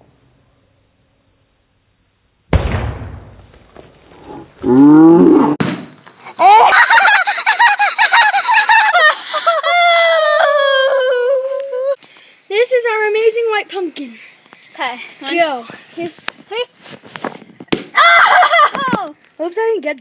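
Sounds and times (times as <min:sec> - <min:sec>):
pumpkin smashing on concrete: 0:05.6 - 0:06.1
people squealing and whooping: 0:06.3 - 0:12.0, 0:17.9 - 0:19.0.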